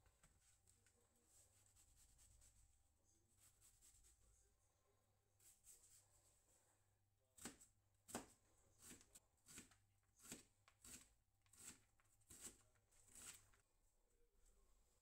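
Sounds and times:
knife chopping on plastic board: 7.4s - 12.6s.

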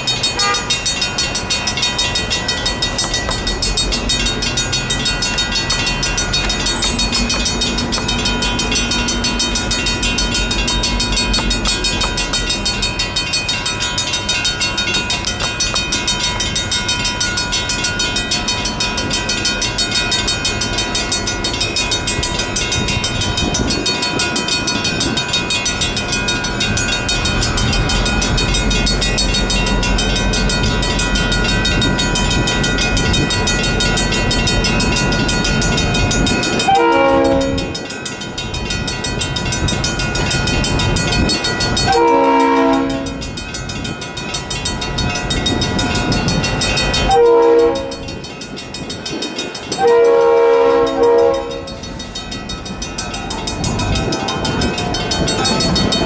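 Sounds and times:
railroad crossing bell ringing: 0.0s - 56.0s
train rumbling: 0.0s - 56.0s
locomotive horn blasts: 0.2s - 0.9s, 36.6s - 37.8s, 41.9s - 43.2s, 47.1s - 48.0s, 49.8s - 51.8s.

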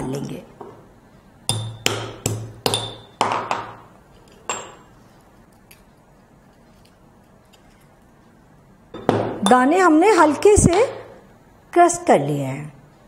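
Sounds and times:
pestle striking metal mortar: 1.5s - 3.8s.

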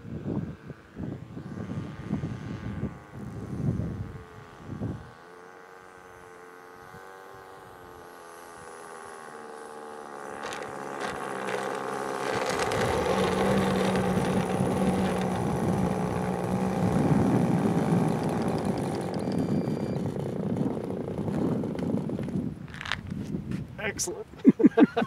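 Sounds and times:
model airplane engine idling: 0.4s - 23.0s
rough rolling noise: 8.9s - 23.3s.

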